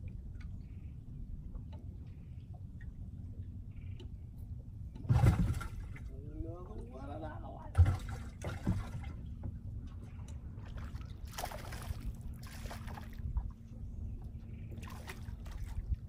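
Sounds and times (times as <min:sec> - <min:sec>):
low steady rumble: 0:00.0 - 0:16.0
fish splashing at water surface: 0:10.8 - 0:13.1.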